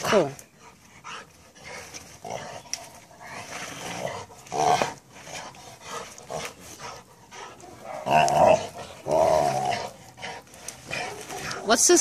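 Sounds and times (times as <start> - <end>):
dog breathing: 5.1 - 7.8.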